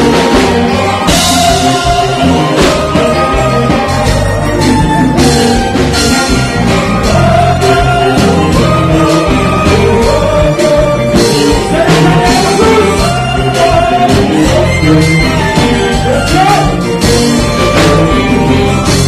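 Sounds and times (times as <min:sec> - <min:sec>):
live band music: 0:00.0 - 0:19.0
man singing into a microphone: 0:07.1 - 0:16.8.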